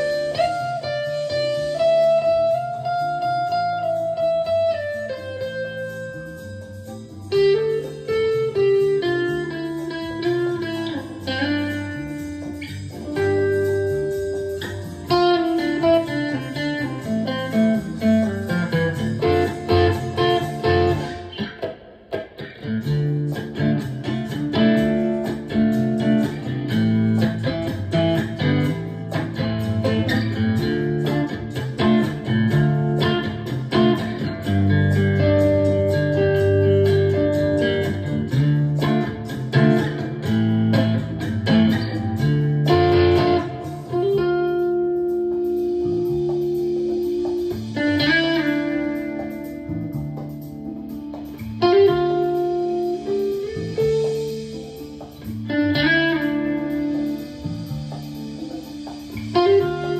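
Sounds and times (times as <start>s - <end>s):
electric guitar blues-rock playing: 0.0s - 59.9s.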